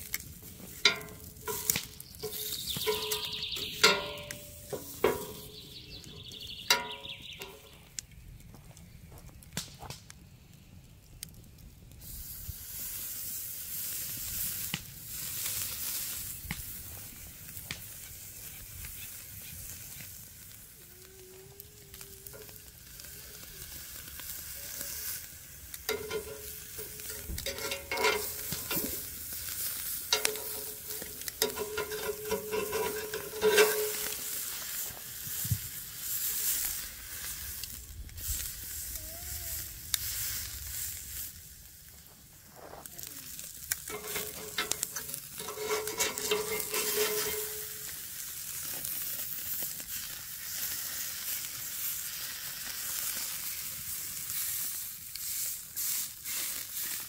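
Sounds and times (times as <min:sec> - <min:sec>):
steak sizzling on grill: 0:00.0 - 0:07.8, 0:12.0 - 0:57.0
metal tongs clinking on grate: 0:00.1 - 0:07.8, 0:25.9 - 0:34.5, 0:43.6 - 0:48.0.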